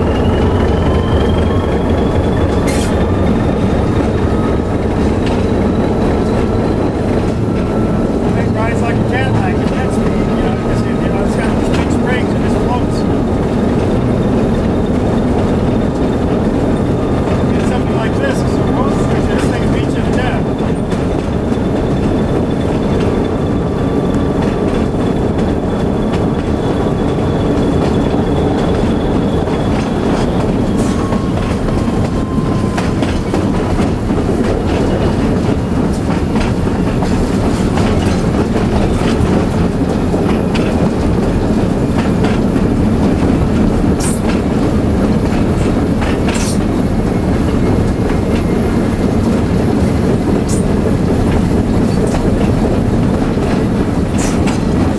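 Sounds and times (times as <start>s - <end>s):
wheel squeals: 0.0s - 13.1s, 13.7s - 49.3s
locomotive engine drone: 0.0s - 54.9s
wheels clicking over rail: 24.1s - 54.9s.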